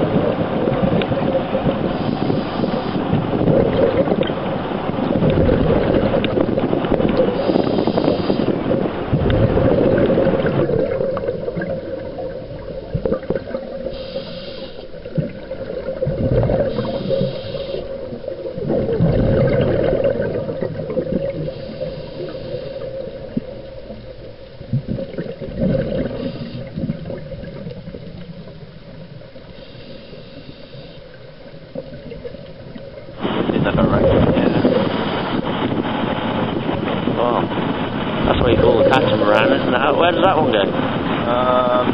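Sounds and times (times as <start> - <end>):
wind buffeting the microphone: 0.0 - 13.5, 33.1 - 41.9
steady hum: 0.0 - 41.9
water rushing past a hull: 0.0 - 41.9.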